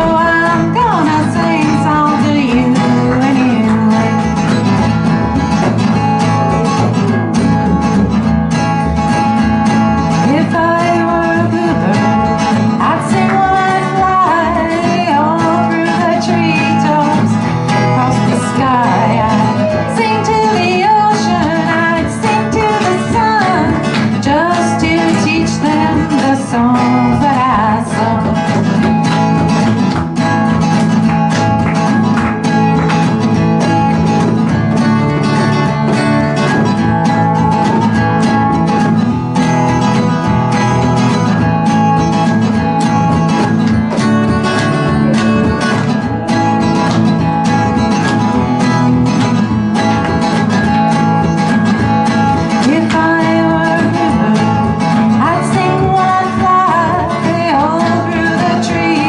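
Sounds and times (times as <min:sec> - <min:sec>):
woman singing: 0:00.0 - 0:04.7, 0:10.0 - 0:29.2, 0:51.8 - 0:59.0
acoustic guitar playing: 0:00.0 - 0:59.0.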